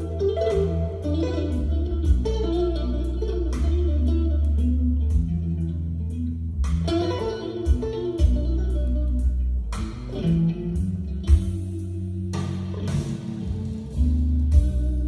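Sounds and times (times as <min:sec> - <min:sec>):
guitar music over bass line: 0:00.0 - 0:15.0.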